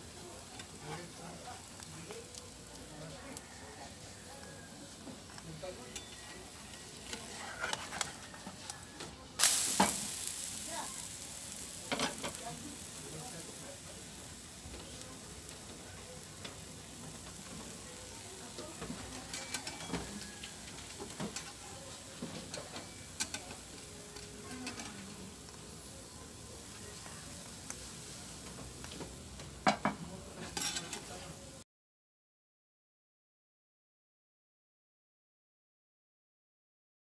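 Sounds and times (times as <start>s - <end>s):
pancake sizzling in a pan: 0.0s - 31.6s
spatula scraping a pan: 5.9s - 8.8s, 11.9s - 12.9s, 18.7s - 21.7s, 30.4s - 31.2s.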